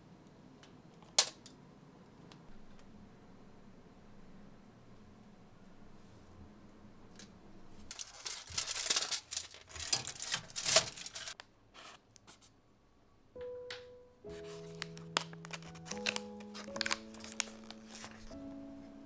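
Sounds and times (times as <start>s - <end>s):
packaging crinkling: 7.9s - 11.4s, 14.3s - 18.4s
soft music with held notes: 13.4s - 19.0s.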